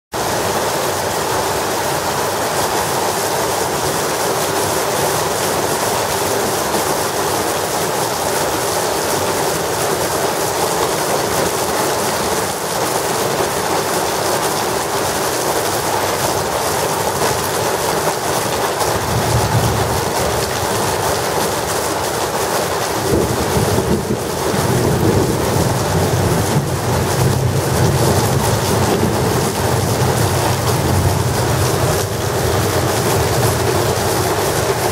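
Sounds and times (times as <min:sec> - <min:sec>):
heavy rain pouring: 0:00.1 - 0:34.9
low thunder rumbling: 0:18.9 - 0:21.1, 0:23.0 - 0:34.9.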